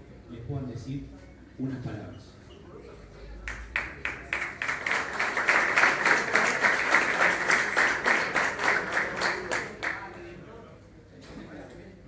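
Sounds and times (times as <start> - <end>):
people clapping in unison: 3.4 - 10.1.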